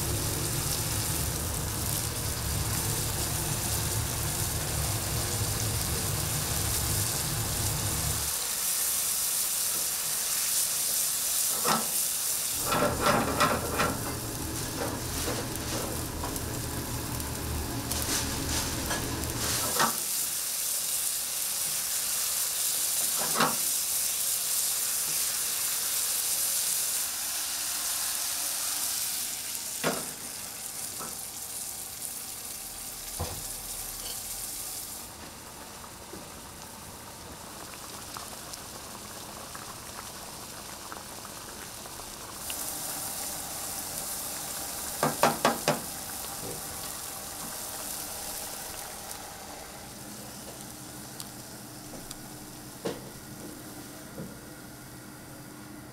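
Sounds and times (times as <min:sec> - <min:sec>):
food sizzling in a frying pan: 0:00.0 - 0:52.9
spatula scraping and knocking pan: 0:12.6 - 0:14.2.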